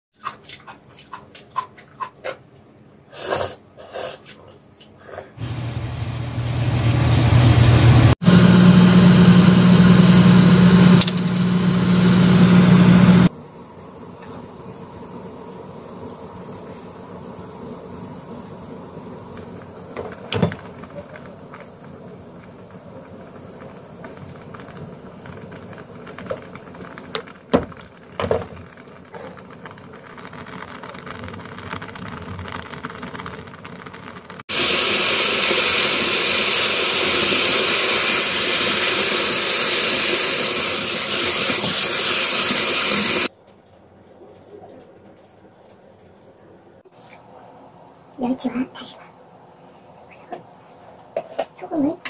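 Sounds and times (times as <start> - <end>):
pot of noodles bubbling: 8.2 - 47.0
running water rushing: 34.5 - 43.3.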